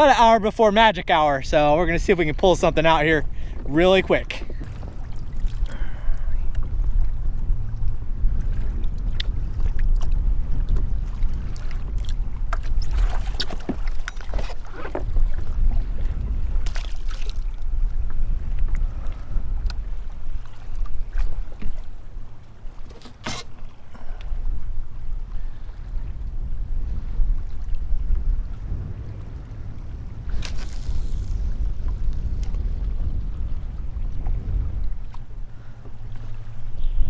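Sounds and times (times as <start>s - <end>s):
wind rumbling on microphone: 0.0s - 37.0s.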